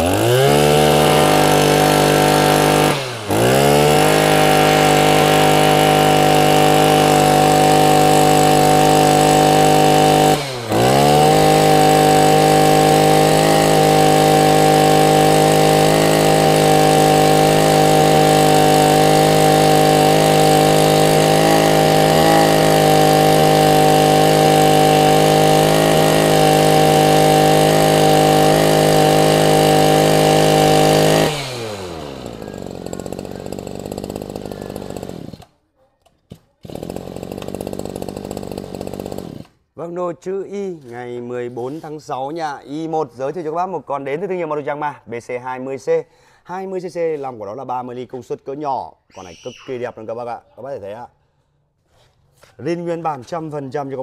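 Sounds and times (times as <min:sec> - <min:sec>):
brush cutter engine buzzing: 0:00.0 - 0:35.6, 0:36.3 - 0:39.6.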